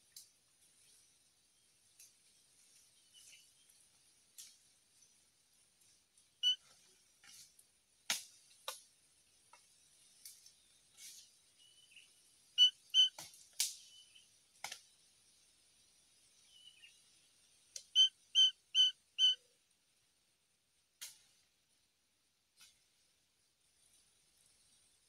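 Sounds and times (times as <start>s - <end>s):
bird calling: 11.6s - 13.2s, 17.9s - 19.4s.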